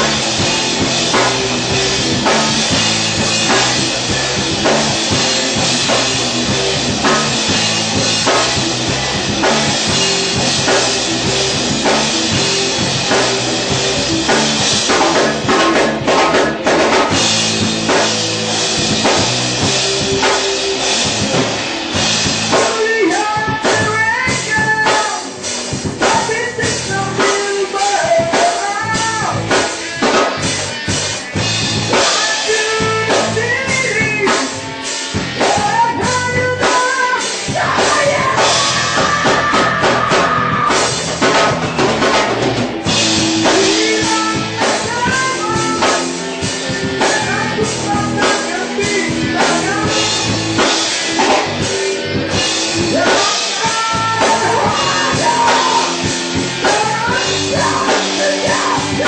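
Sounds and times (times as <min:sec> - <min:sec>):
drum kit with cymbals: 0:00.0 - 0:59.0
electric guitars: 0:00.0 - 0:59.0
man singing: 0:09.6 - 0:17.2, 0:22.5 - 0:30.1, 0:31.9 - 0:41.4, 0:43.2 - 0:51.6, 0:52.6 - 0:59.0.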